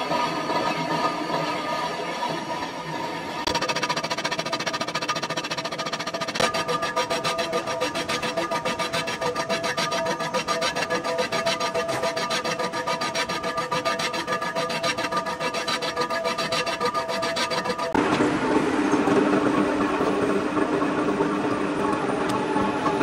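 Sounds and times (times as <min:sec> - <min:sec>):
tool rasping metal: 0:03.5 - 0:18.0.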